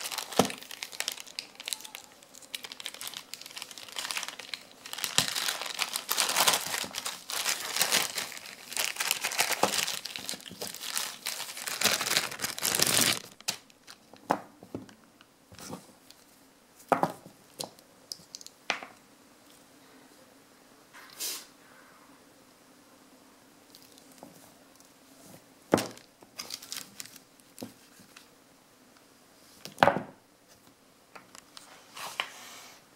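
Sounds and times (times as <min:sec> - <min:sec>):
plastic bag crinkling: 0:00.0 - 0:15.0, 0:25.7 - 0:28.2.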